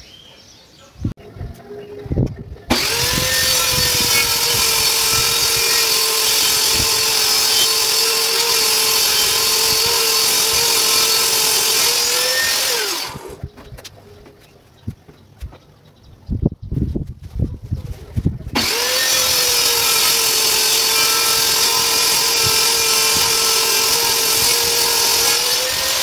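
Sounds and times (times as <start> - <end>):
table saw running: 2.7 - 13.4, 18.6 - 26.0.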